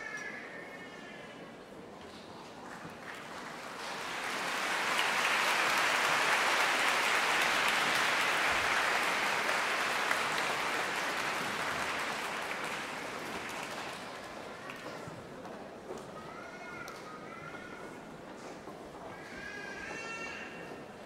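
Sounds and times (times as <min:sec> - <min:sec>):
audience applauding: 0:03.0 - 0:14.9.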